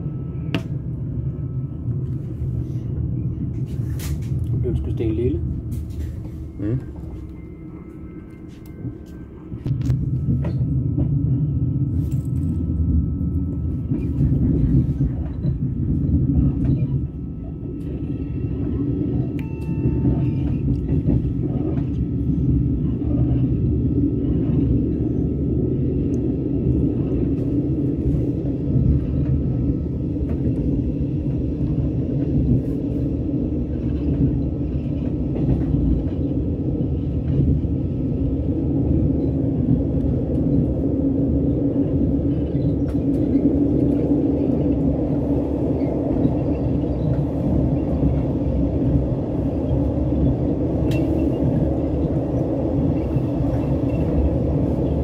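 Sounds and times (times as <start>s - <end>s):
train rumbling on track: 0.0s - 55.0s.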